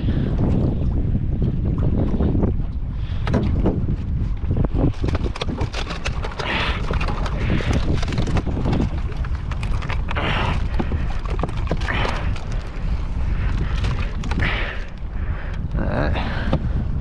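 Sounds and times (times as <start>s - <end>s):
water splashing against hull: 0.0s - 17.0s
wind buffeting microphone: 0.0s - 17.0s
knocks in boat: 3.2s - 3.8s.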